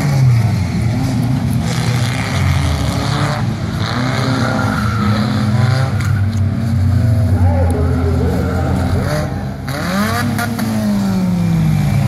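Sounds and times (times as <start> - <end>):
stock car engines revving: 0.0 - 12.0.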